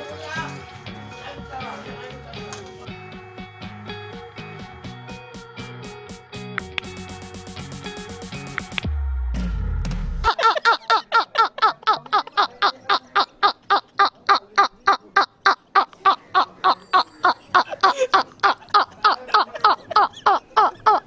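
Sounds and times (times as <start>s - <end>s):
man cackling laughter: 10.3s - 21.0s.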